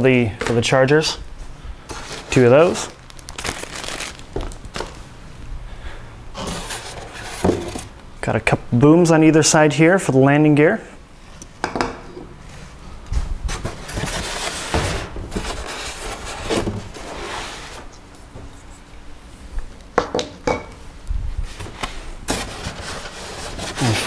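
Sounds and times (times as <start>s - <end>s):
rustling and scraping of parts: 1.4s - 5.1s, 6.3s - 7.9s, 12.0s - 19.5s, 21.4s - 24.0s.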